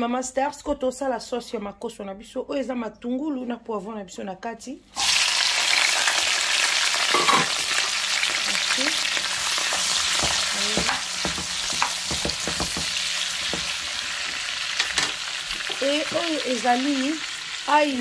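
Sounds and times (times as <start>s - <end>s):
vegetables sizzling in oil: 4.9s - 18.0s
spatula scraping and tapping pan: 9.7s - 13.9s.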